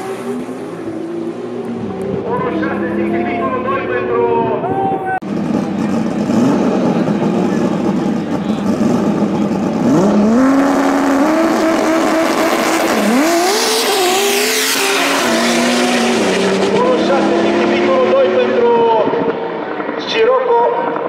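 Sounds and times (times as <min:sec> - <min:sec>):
race car engines running rough: 0:00.0 - 0:20.1
engine revving at high revs: 0:05.5 - 0:18.7.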